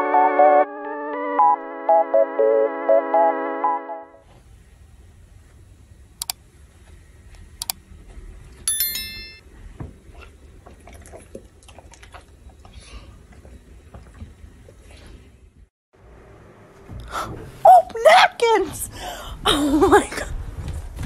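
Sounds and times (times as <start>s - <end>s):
bright bell ding: 8.7s - 9.4s.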